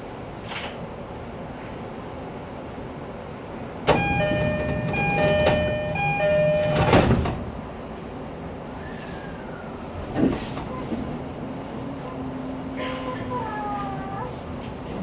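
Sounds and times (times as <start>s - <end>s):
sliding doors shutting with thud: 3.8s - 7.5s
two-note electronic chime: 4.0s - 6.9s.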